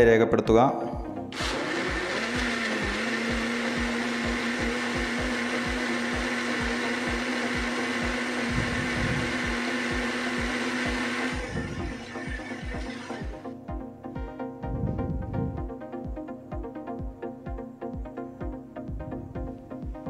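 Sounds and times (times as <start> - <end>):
electric mixer grinder running: 1.3 - 13.5.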